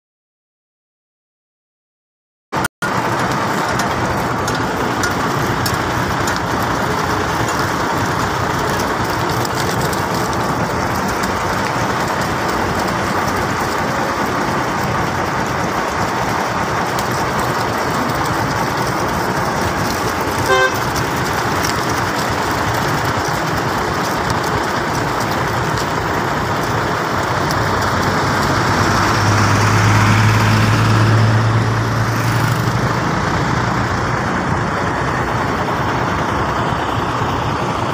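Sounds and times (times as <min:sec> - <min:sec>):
road traffic noise: 0:02.6 - 0:37.9
vehicle horn toot: 0:20.4 - 0:20.9.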